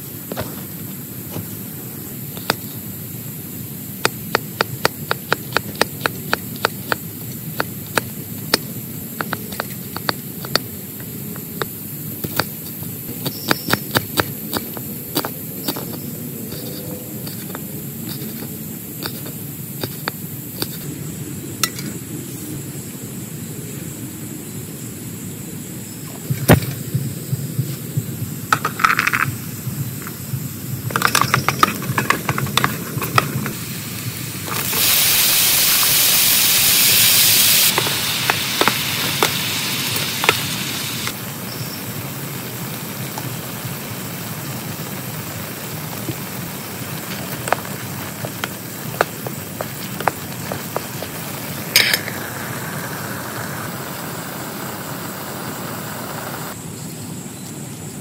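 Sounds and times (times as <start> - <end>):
rain on a tent: 34.0 - 52.4.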